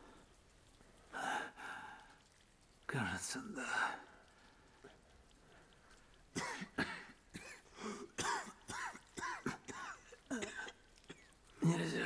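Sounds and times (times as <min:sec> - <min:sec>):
man coughing: 0:06.4 - 0:10.8.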